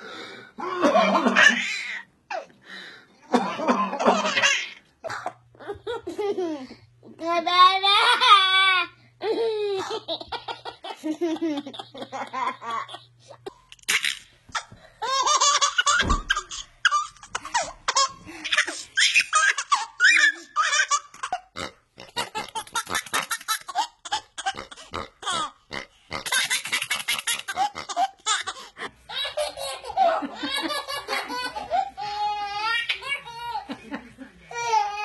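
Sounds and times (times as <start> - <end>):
babies laughing: 0.8 - 2.5, 3.3 - 4.8, 5.6 - 21.5, 22.1 - 25.6, 26.2 - 33.9, 34.5 - 35.0.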